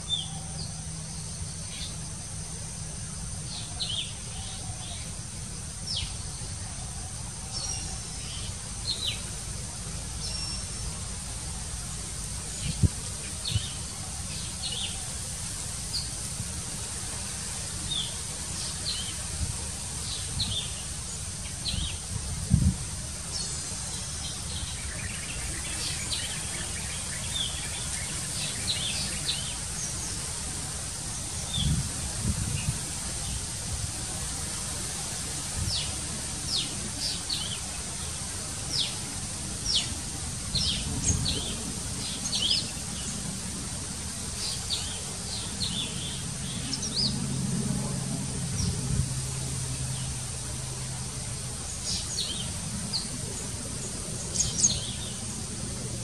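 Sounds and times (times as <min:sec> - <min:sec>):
small birds chirping: 0:00.0 - 0:47.2, 0:49.6 - 0:56.0
steady low rumble: 0:28.8 - 0:56.0.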